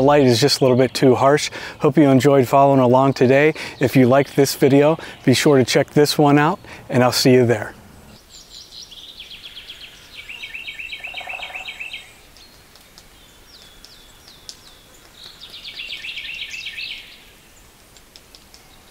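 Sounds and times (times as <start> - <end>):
bird singing whistled notes: 8.1 - 17.6.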